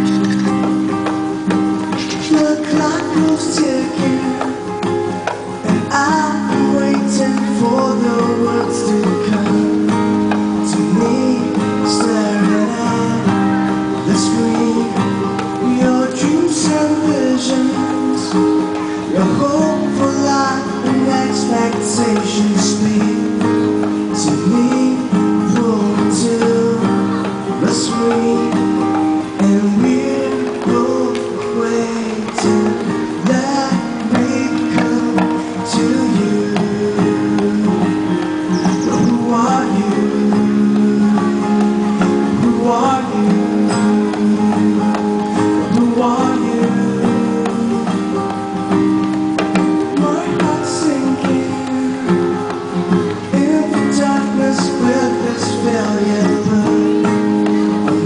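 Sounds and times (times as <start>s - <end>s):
acoustic guitar strummed: 0.0s - 58.0s
man singing into a microphone: 0.0s - 58.0s
hand drum struck: 0.4s - 58.0s.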